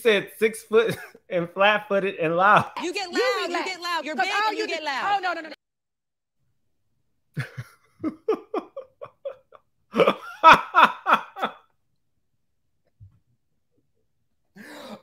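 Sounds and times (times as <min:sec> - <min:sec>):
man laughing: 0:00.8 - 0:01.2, 0:02.4 - 0:03.7, 0:07.4 - 0:11.6.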